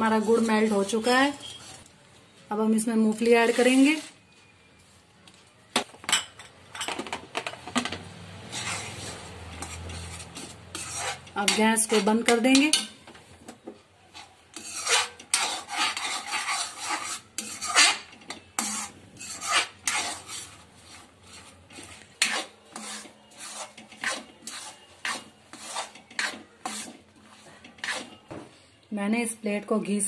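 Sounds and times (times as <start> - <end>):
metal ladle scraping metal pan: 0.0 - 1.9, 8.4 - 13.0, 14.1 - 28.3.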